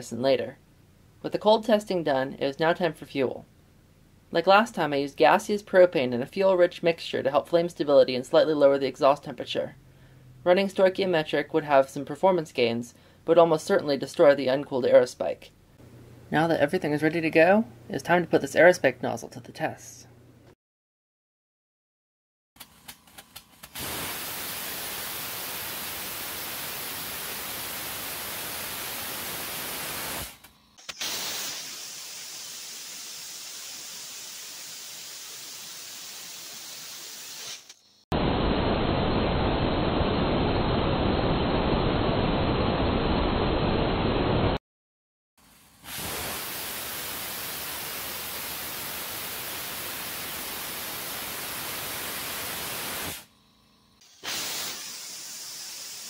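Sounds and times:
rocket engine exhaust hissing: 23.8 - 37.8, 54.0 - 56.0.

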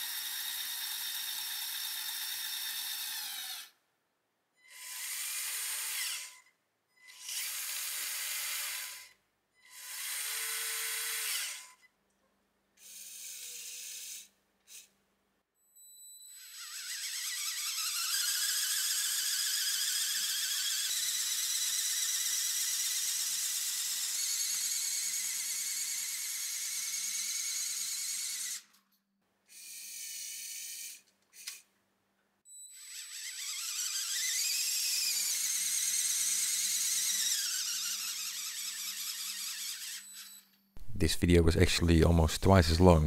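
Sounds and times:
higher-pitched motor bursts: 16.3 - 25.0, 32.5 - 40.4
electric motor whining: 32.7 - 40.4.

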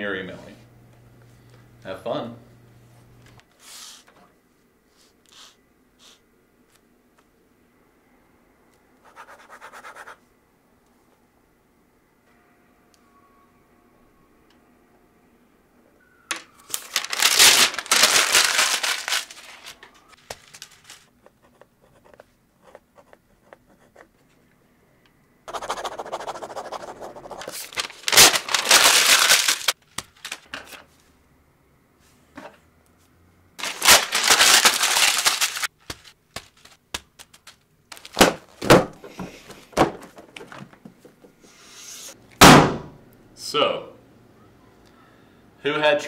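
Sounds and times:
pen scratching on paper: 21.2 - 24.2, 25.5 - 27.6.

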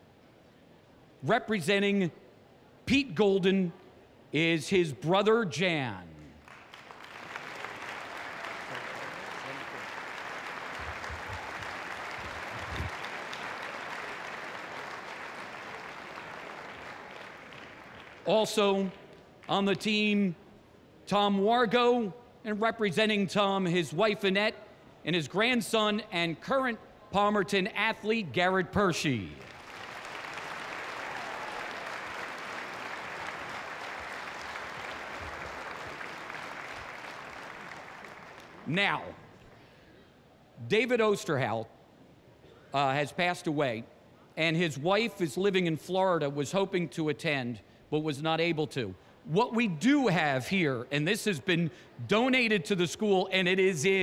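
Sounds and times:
crowd applauding: 6.4 - 18.3, 29.4 - 38.7.

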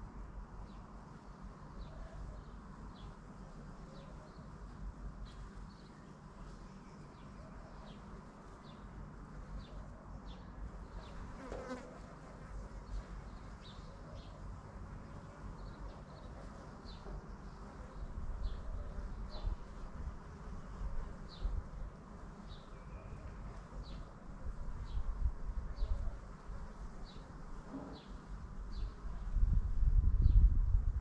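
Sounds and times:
bee flying close past: 11.3 - 13.0
wind rumble on microphone: 17.9 - 21.9, 24.4 - 27.1, 28.4 - 31.0.

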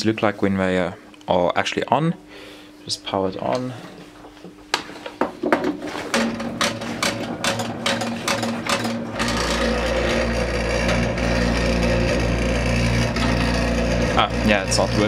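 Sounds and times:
steady low hum: 0.0 - 15.0
mirrors rattling with rapid clicks: 5.1 - 15.0
buzzing tone: 6.1 - 15.0.

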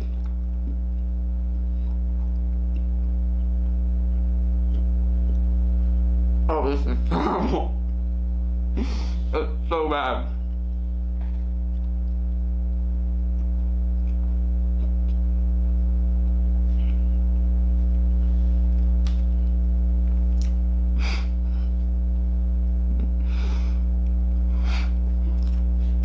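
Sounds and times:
electrical mains hum: 0.0 - 26.0
chewing: 1.8 - 5.5, 25.3 - 25.7
sniffs: 8.8 - 9.3.

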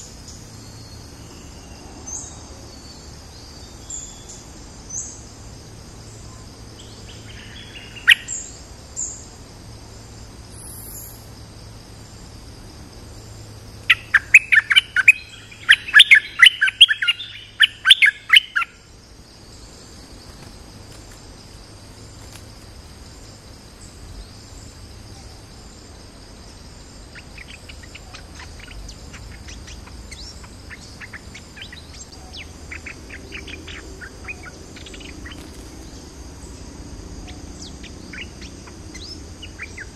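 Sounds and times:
high insect drone: 0.0 - 39.9
bird chirping and chattering: 27.1 - 35.6, 37.3 - 39.9.

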